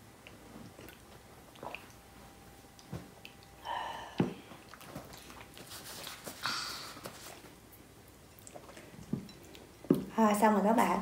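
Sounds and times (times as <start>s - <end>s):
mouth chewing sounds: 0.1s - 2.0s, 7.3s - 9.9s.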